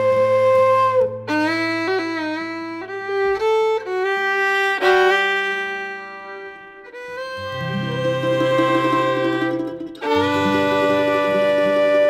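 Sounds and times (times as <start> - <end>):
fiddle melody: 0.0 - 12.0
folk ensemble playing a march: 7.4 - 12.0.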